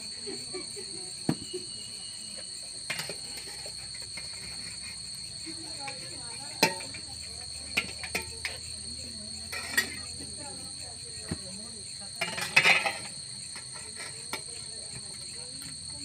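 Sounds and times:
crickets trilling: 0.0s - 16.0s.

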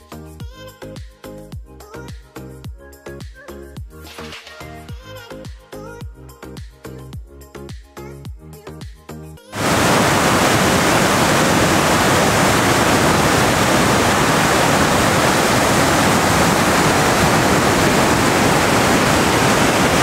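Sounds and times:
river rushing over rocks: 9.6s - 20.0s.

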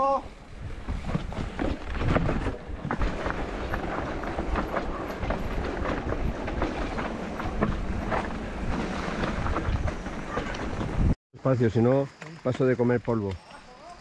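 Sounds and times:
bike rattling: 0.4s - 11.2s
tyres crunching on loose ground: 0.8s - 11.2s.

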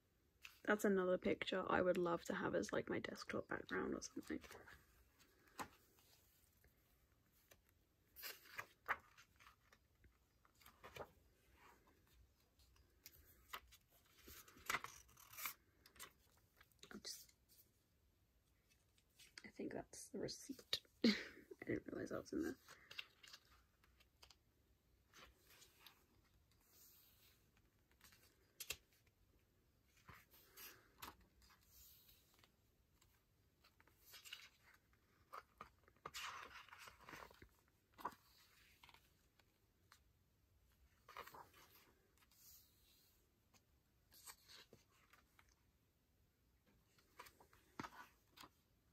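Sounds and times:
book pages rustling: 4.0s - 17.8s, 22.5s - 40.1s, 40.7s - 45.8s, 46.6s - 48.9s
paper rustling and crinkling: 7.3s - 16.7s, 29.9s - 39.5s.

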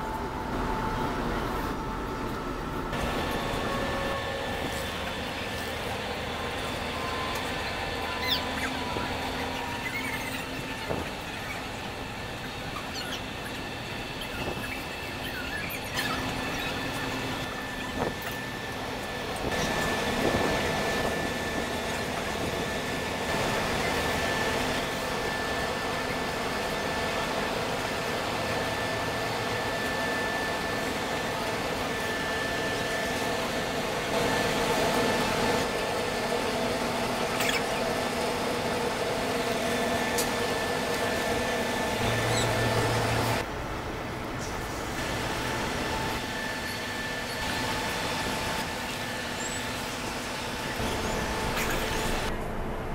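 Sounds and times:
ship machinery hum: 0.0s - 52.9s
thin high whine: 0.0s - 52.9s.

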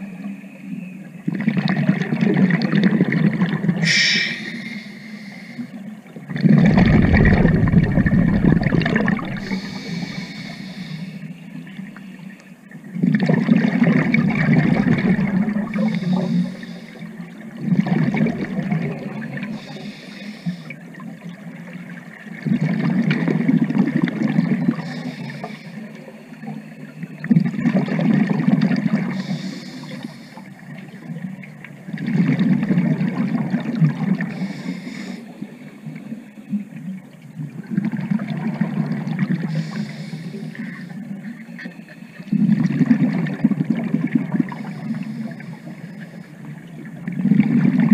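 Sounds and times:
underwater exhaled bubbles rumbling: 1.1s - 30.0s, 30.6s - 34.7s, 35.3s - 47.9s
regulator inhalation hiss: 3.8s - 5.8s, 9.2s - 11.3s, 15.7s - 17.1s, 19.6s - 20.7s, 29.2s - 30.5s, 34.3s - 35.3s, 39.5s - 40.9s, 44.5s - 46.2s.

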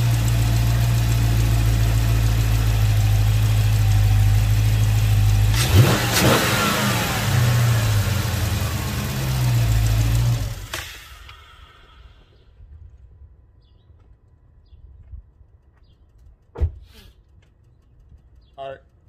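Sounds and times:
car engine idling and revving: 0.0s - 12.4s.

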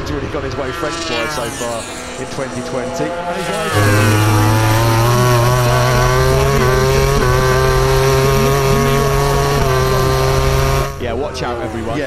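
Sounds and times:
motorcycle engine at high revs: 0.0s - 12.0s.

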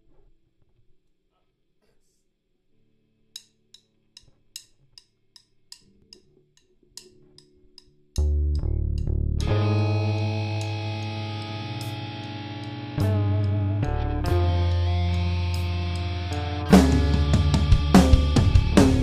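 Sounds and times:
low held tones: 8.2s - 19.0s
rock band playing: 9.4s - 19.0s.

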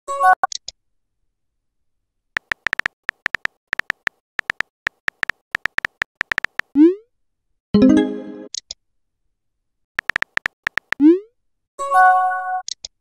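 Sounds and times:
phone keyboard clicks: 2.4s - 6.8s, 10.0s - 11.0s.

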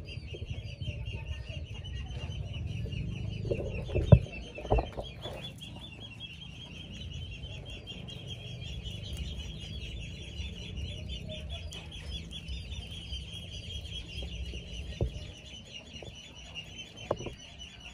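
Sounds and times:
low rumble: 0.0s - 16.4s
chicks peeping: 0.0s - 17.9s.

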